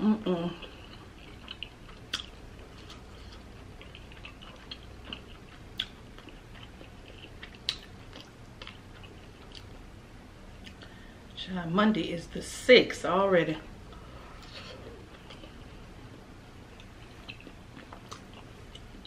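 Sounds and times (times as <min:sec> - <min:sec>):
close chewing with mouth clicks: 0:00.6 - 0:09.8, 0:16.7 - 0:19.0.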